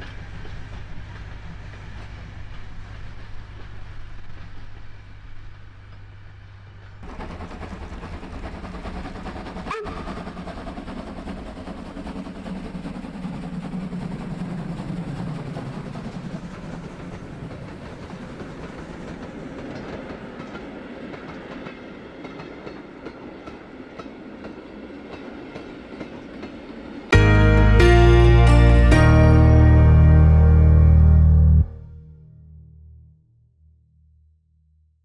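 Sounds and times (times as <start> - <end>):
steam locomotive passing: 0.0 - 31.8
train wheels clicking over rail joints: 6.8 - 26.9.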